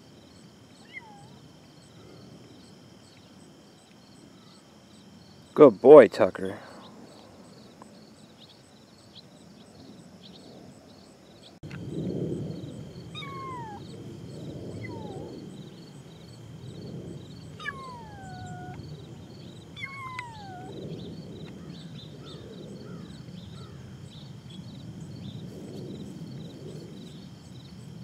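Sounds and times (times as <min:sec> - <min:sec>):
kittens meowing: 0:00.8 - 0:01.4, 0:13.1 - 0:13.9, 0:14.8 - 0:15.3, 0:17.6 - 0:18.9, 0:19.8 - 0:20.8.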